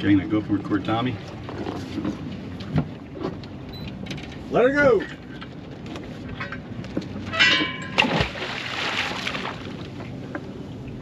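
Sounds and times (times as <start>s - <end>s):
high ringing tone: 7.3s - 8.0s
rush of water: 7.4s - 11.0s.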